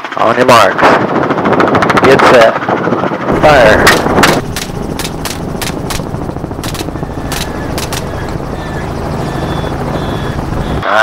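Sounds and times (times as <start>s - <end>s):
helicopter rotor drone: 0.0s - 11.0s
gunshots: 3.3s - 8.7s.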